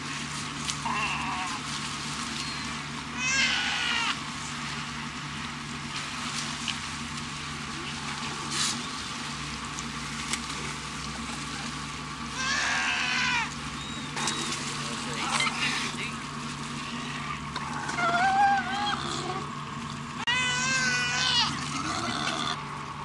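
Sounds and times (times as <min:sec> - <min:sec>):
boat engine hum: 0:00.0 - 0:23.0
sea lions calling: 0:00.8 - 0:01.7, 0:02.3 - 0:04.2, 0:12.2 - 0:22.8.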